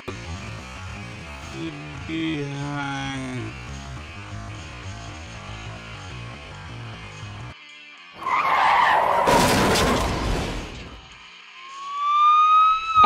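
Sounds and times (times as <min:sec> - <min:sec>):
background music: 0:00.0 - 0:13.0
car tyres screeching: 0:08.2 - 0:11.0
crash impacts: 0:09.1 - 0:11.2
siren wailing: 0:11.6 - 0:13.0.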